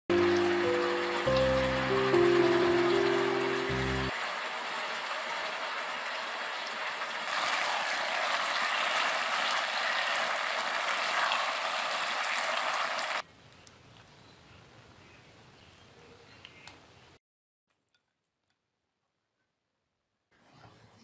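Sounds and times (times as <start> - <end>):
food sizzling in a wok: 0.1 - 13.2.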